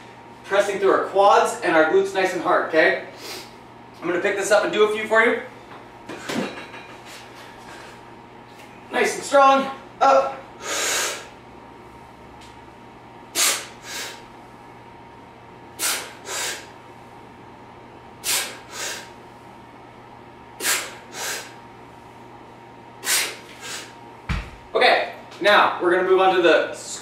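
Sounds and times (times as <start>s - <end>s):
man breathing forcefully: 10.6s - 11.4s, 13.3s - 14.3s, 15.8s - 16.8s, 18.2s - 19.2s, 20.6s - 21.6s, 23.0s - 24.0s.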